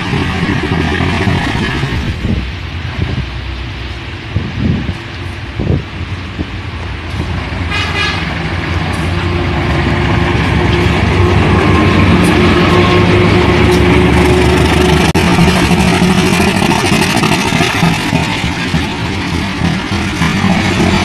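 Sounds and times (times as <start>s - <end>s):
diesel locomotive passing: 0.0s - 21.0s
train horn blast: 7.6s - 9.6s.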